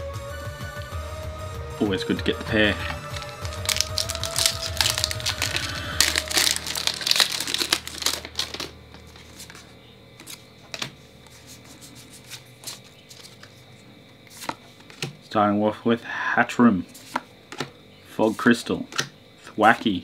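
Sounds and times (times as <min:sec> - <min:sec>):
foil pack crinkling: 0:02.6 - 0:10.4
cards clicking and flicking: 0:02.8 - 0:09.6.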